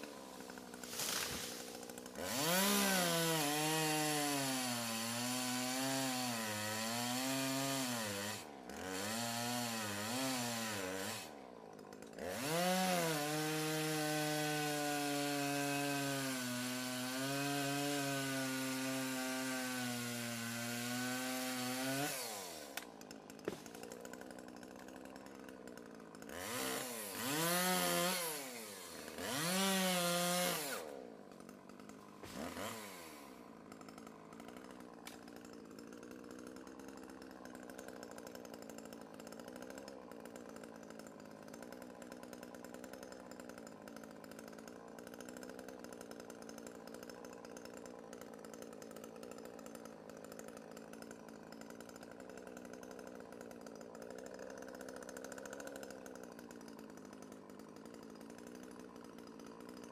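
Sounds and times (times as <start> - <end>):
chainsaw cutting trees: 0.0 - 59.9.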